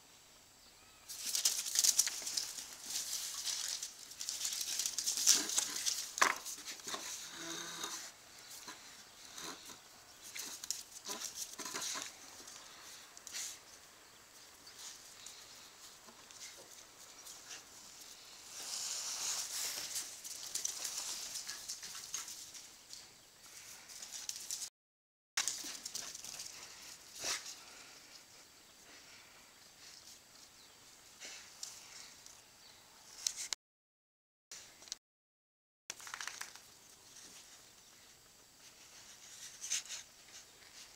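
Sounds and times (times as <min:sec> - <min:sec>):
dog claws clicking on tile floor: 0:35.9 - 0:36.7.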